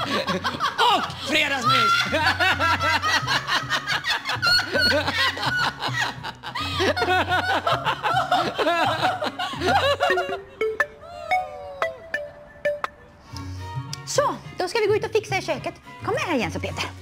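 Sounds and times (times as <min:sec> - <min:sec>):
people laughing: 0:00.0 - 0:10.5.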